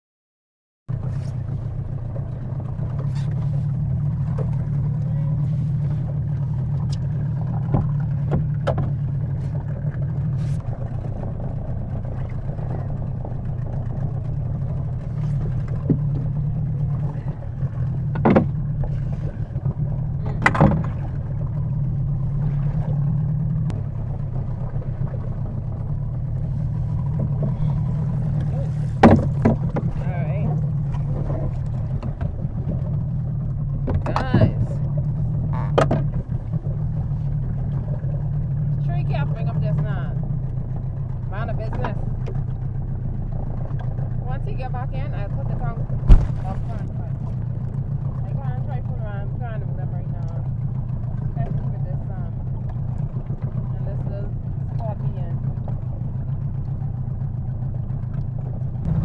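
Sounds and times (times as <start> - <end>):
outboard motor running: 0.9 - 59.0
sharp knocks: 29.0 - 29.9, 46.0 - 46.5.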